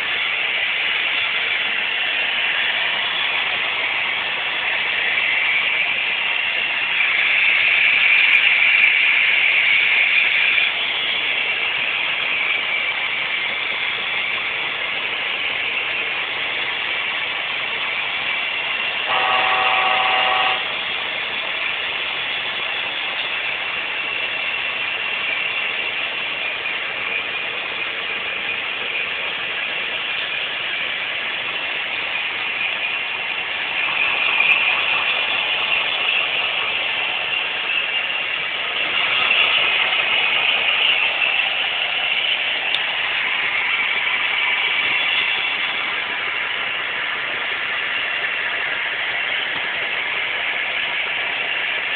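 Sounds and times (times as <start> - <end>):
model train whir and rattle: 0.0 - 51.9
short pitched tone: 19.1 - 20.8.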